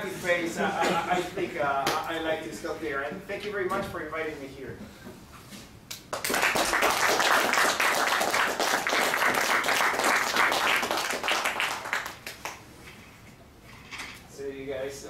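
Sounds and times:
audience applauding: 6.1s - 12.6s.

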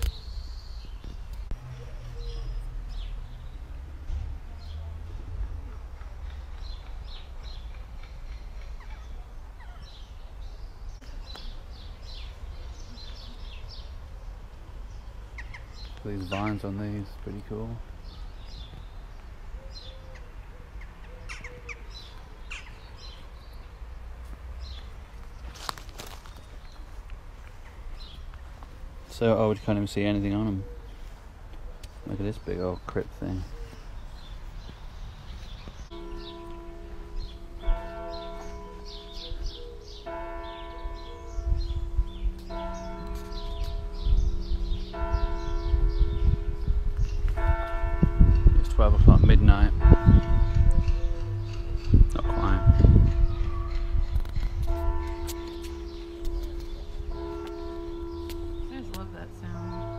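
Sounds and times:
small birds chirping: 0.0s - 3.9s, 4.5s - 59.9s
church bell ringing: 35.9s - 59.9s.

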